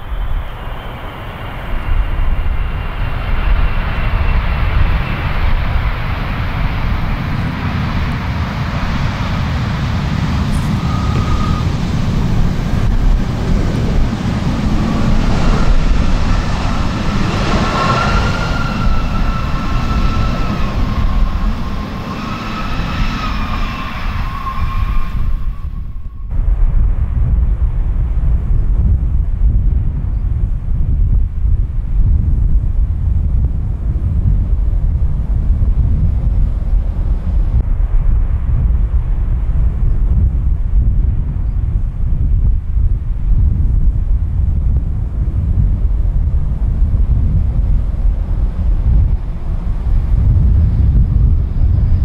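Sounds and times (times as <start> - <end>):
jet engine whine: 0.0 - 30.2, 43.0 - 52.0
jet engines rumbling: 0.0 - 52.0.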